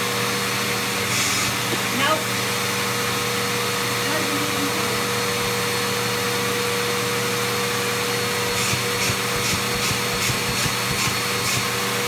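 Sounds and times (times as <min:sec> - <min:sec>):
vacuum cleaner running: 0:00.0 - 0:12.0
nozzle rasping over fabric: 0:08.3 - 0:11.7.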